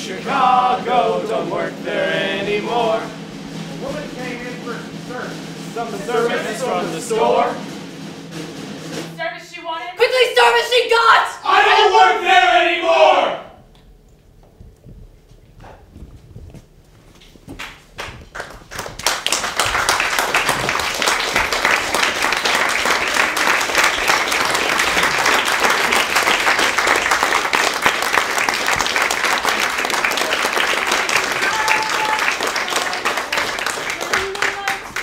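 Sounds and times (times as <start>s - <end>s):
audience applauding: 17.6s - 35.0s.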